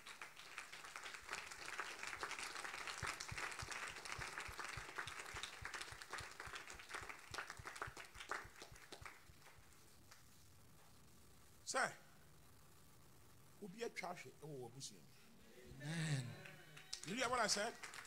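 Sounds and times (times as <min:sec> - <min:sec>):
crowd applauding: 0:00.0 - 0:09.6, 0:16.1 - 0:18.0.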